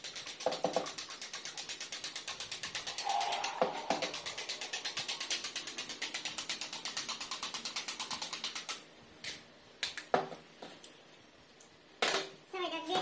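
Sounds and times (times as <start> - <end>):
fork beating eggs in bowl: 0.0 - 8.9.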